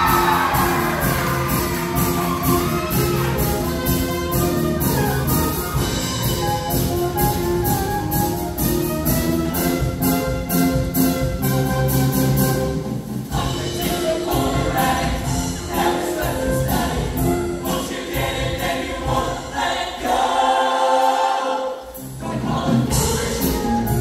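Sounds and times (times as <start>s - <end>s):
choir singing: 0.0s - 4.0s, 13.2s - 24.0s
live band playing: 0.0s - 18.5s, 21.8s - 24.0s.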